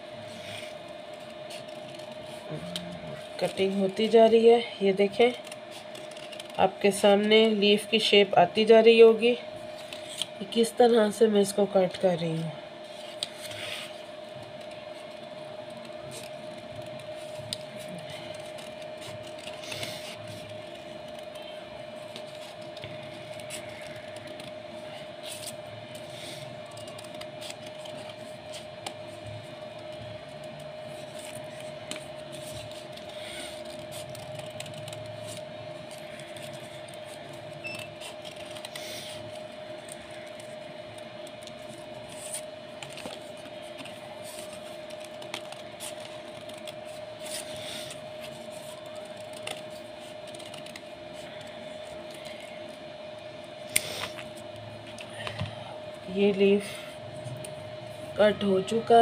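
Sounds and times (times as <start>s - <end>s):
steady hum: 0.0s - 59.0s
paper rustling: 14.6s - 52.4s.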